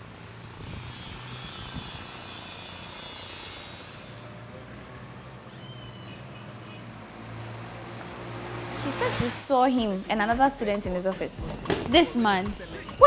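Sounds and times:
street background hiss: 0.0 - 13.0
faint high chirp: 5.6 - 6.2.

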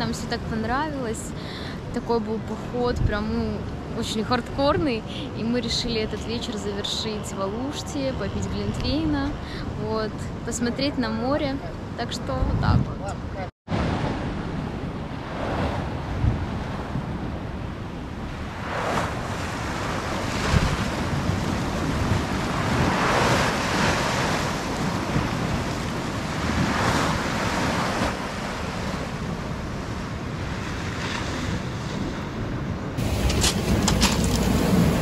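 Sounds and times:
wind on microphone: 2.6 - 35.0
sea surf washing in: 13.7 - 35.0
steady rumbling noise: 32.7 - 35.0.

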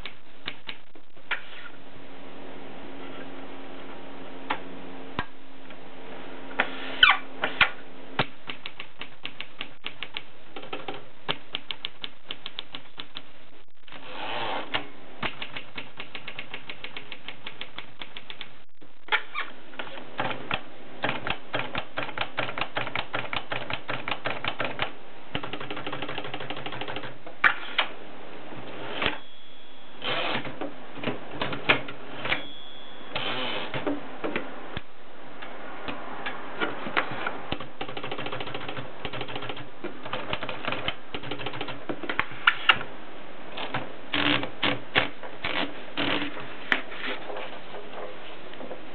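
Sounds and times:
typewriter carriage return rasp: 20.2 - 27.1, 37.6 - 41.8.

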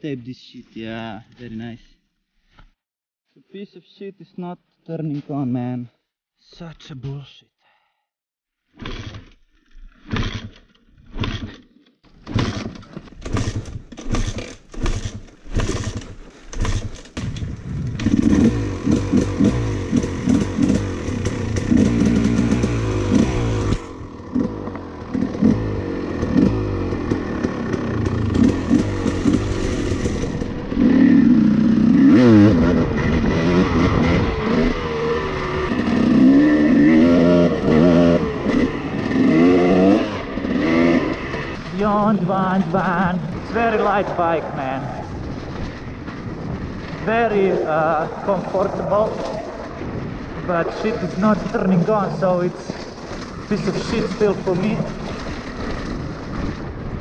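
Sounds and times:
dirt bike engine revving: 12.2 - 56.5.

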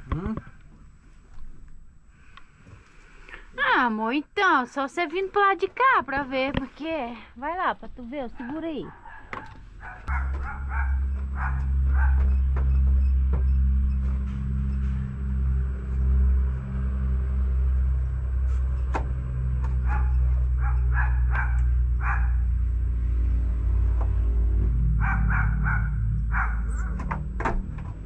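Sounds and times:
dog barking: 8.2 - 12.5, 19.8 - 22.5, 25.0 - 27.1
loud steady low drone: 10.0 - 28.0.

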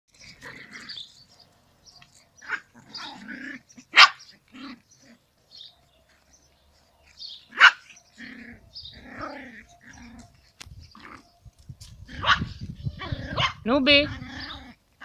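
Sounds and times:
dogs growling: 0.1 - 15.0
dog barking sharply: 4.0 - 4.2, 7.6 - 7.8.

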